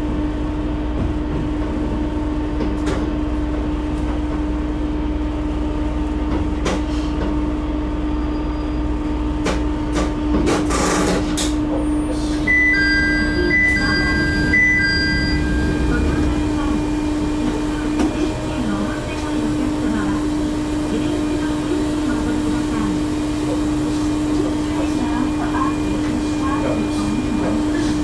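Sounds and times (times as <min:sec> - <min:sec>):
railcar running hum: 0:00.0 - 0:28.0
two-note electronic chime: 0:12.5 - 0:16.5.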